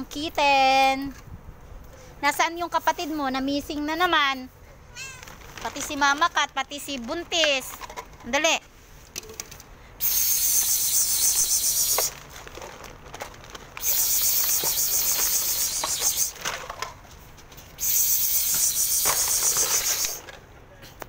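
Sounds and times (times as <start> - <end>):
insect rasping buzz: 10.0 - 12.1, 13.8 - 16.4, 17.8 - 20.2.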